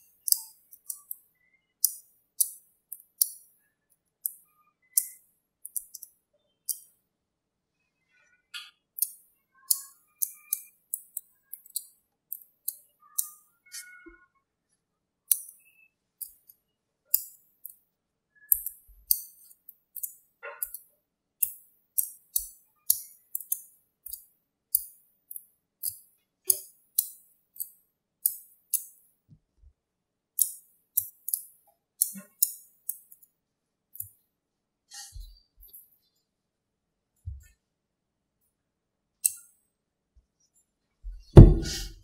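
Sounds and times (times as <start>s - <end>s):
magnetic balls clicking: 0.0s - 3.6s, 4.2s - 7.0s, 8.6s - 14.0s, 18.5s - 29.1s, 30.4s - 33.3s.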